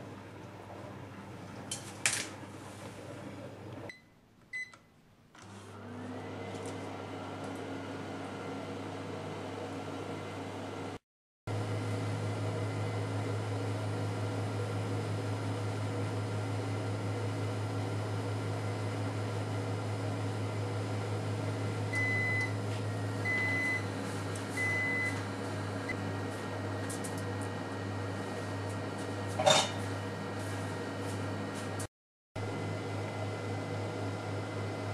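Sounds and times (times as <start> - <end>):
short oven beeps: 3.9 - 4.9, 21.9 - 22.6, 23.2 - 23.9, 24.6 - 25.2
oven humming: 5.4 - 34.9.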